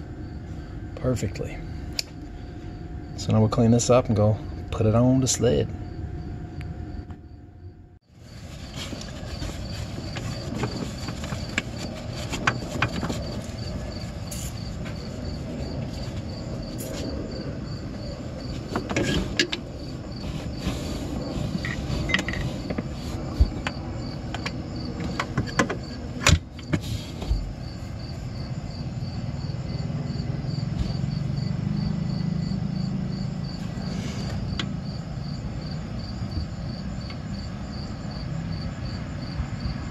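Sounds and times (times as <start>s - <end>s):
low rumble: 0.0s - 25.0s
insects chirping: 0.0s - 39.9s.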